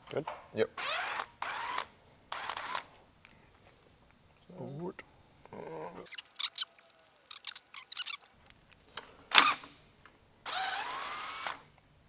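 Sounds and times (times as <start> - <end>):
cordless drill whirring: 0.8 - 2.9, 10.5 - 11.6.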